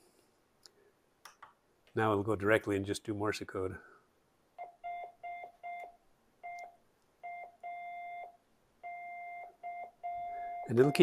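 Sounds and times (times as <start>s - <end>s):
morse code beeps: 4.6s - 11.0s.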